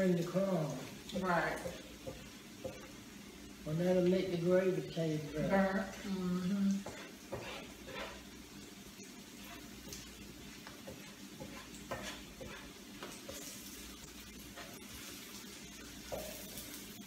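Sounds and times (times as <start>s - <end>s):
onions sizzling in oil: 0.0s - 17.0s
spoon scraping pan: 6.7s - 8.4s, 9.2s - 17.0s.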